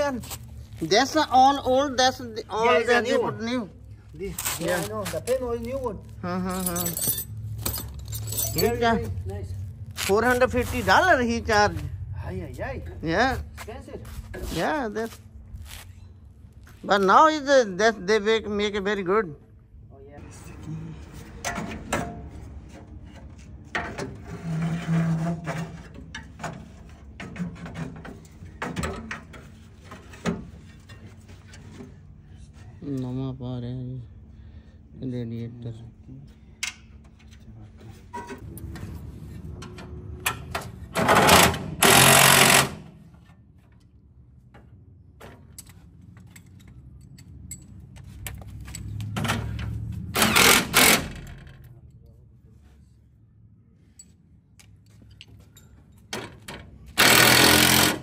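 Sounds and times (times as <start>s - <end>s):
power drill tightening bolts: 41.0s - 42.8s, 56.9s - 58.0s.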